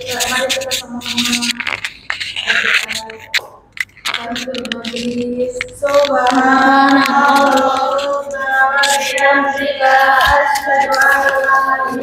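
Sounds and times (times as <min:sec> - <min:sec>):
students chanting prayer in unison: 0:05.8 - 0:12.0.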